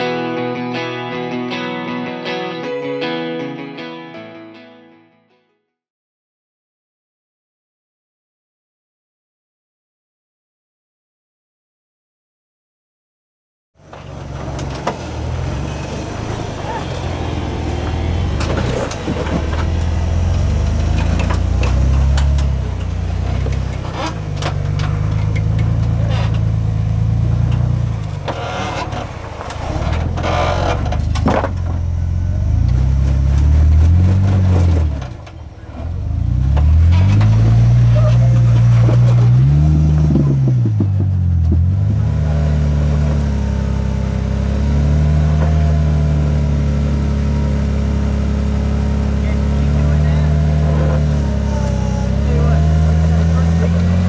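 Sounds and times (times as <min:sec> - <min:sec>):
off-road vehicle engine revving: 0:13.8 - 0:54.0
sharp knocks: 0:40.0 - 0:42.0.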